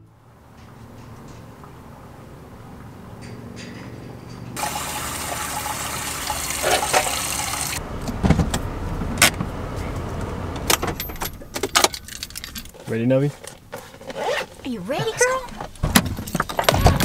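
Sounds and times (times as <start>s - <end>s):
water running from tap: 4.6s - 7.8s.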